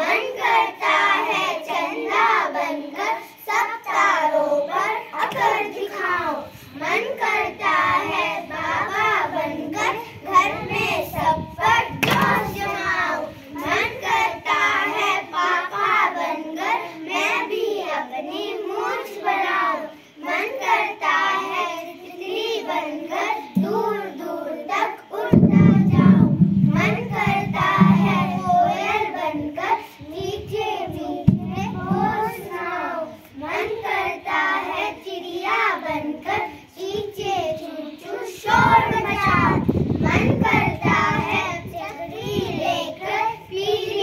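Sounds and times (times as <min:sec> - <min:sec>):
children singing: 0:00.0 - 0:44.0
low microphone rumble: 0:25.3 - 0:33.6, 0:38.5 - 0:44.0.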